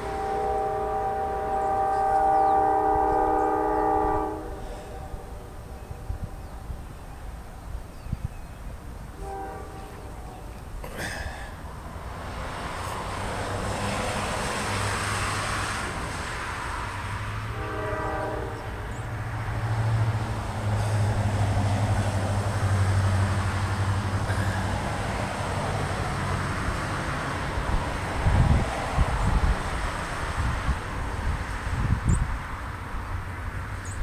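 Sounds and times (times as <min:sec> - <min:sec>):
locomotive horn: 0:00.0 - 0:06.8, 0:09.2 - 0:10.6, 0:17.4 - 0:19.3
diesel locomotive engine drone: 0:00.0 - 0:34.0.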